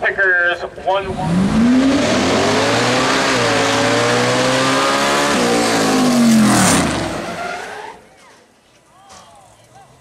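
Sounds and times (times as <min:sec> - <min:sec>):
racing engine running high: 0:01.0 - 0:08.0
tyre skid: 0:01.7 - 0:08.5.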